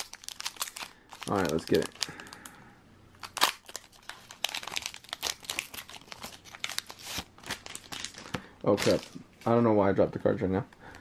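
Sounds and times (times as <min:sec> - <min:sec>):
foil wrapper crinkling and tearing: 0:00.0 - 0:02.5, 0:03.2 - 0:09.2.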